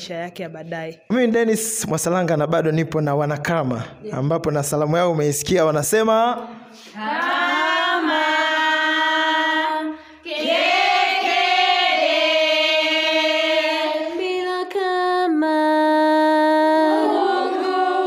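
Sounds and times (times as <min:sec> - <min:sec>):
group of voices singing: 0:06.6 - 0:18.0.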